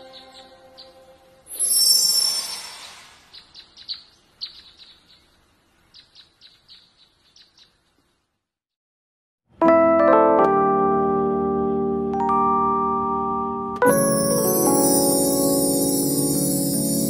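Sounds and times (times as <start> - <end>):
bird chirps: 0.0 - 8.1
swoosh with shimmering chime: 1.5 - 3.3, 14.0 - 17.0
piano chord: 9.6 - 17.0.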